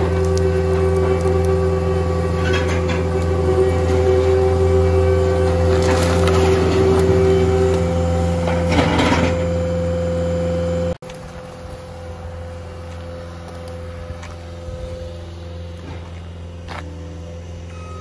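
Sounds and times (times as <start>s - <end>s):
noisy crunch: 0.0s - 17.3s
engine running: 0.0s - 18.0s.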